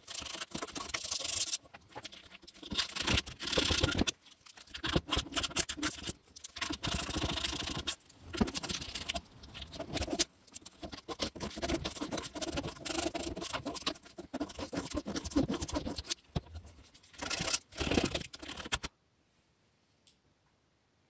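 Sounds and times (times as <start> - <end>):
hand tool scraping wood: 4.8 - 18.9.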